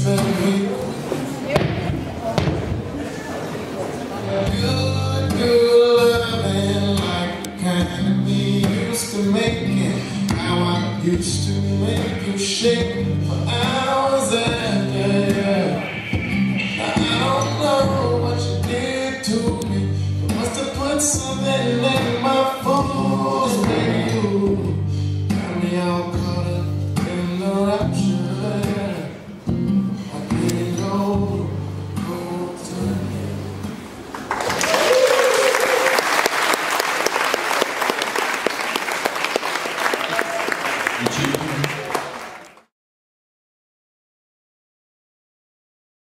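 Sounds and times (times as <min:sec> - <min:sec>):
blues song with singing: 0:00.0 - 0:02.6, 0:04.1 - 0:34.0
audience applause: 0:34.1 - 0:42.7.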